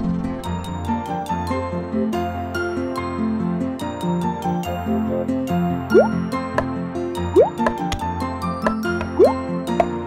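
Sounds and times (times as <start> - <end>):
light children's music: 0.0 - 10.0
cartoon bloop sound effect: 5.9 - 6.2.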